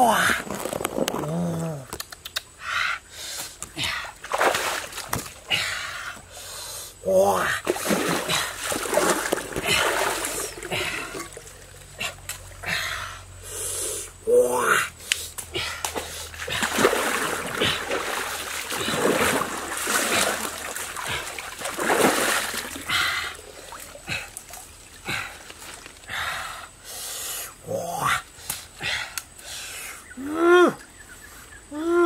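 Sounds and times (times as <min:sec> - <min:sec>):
stream water splashing: 0:03.6 - 0:06.5, 0:07.5 - 0:12.7, 0:15.3 - 0:26.1.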